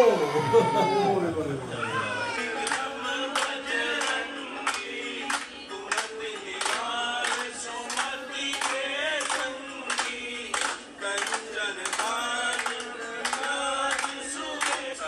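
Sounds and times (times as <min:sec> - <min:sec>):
group of voices singing: 0:00.0 - 0:15.0
clapping beat: 0:02.3 - 0:15.0.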